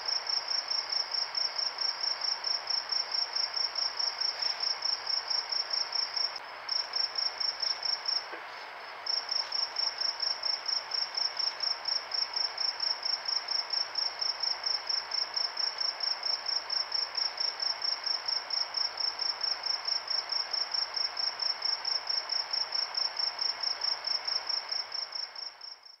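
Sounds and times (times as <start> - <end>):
steady hiss: 0.0 - 20.2
night insects chirping: 0.0 - 26.0.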